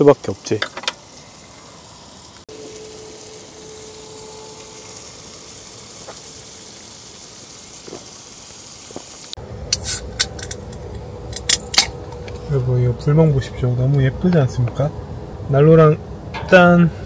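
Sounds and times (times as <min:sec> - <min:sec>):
meat sizzling on grill pan: 0:00.0 - 0:10.6.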